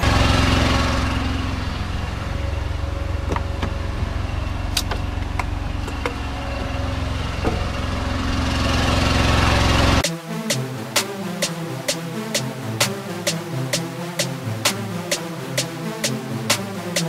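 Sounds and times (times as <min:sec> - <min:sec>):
truck engine idling: 0:00.0 - 0:10.0.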